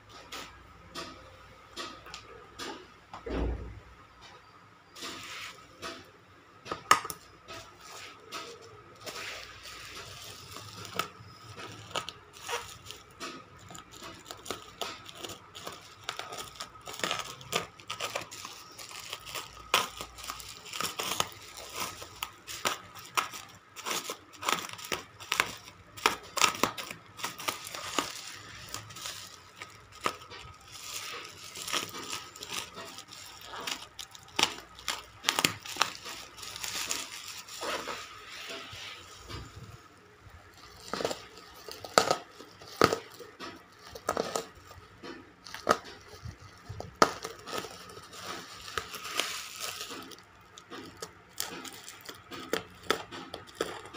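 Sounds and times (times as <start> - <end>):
bubble wrap crinkling and crackling: 5.0 - 6.0, 6.8 - 53.9.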